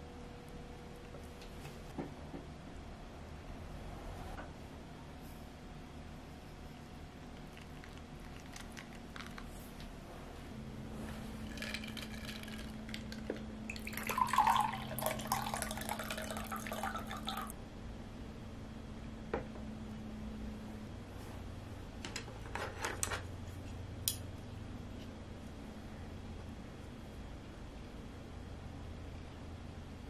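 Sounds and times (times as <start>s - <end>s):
drink pouring into a glass: 11.4s - 17.5s.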